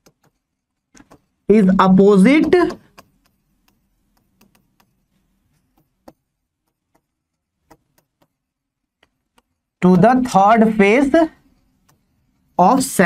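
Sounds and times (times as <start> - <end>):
writing strokes on board: 0.0 - 9.7.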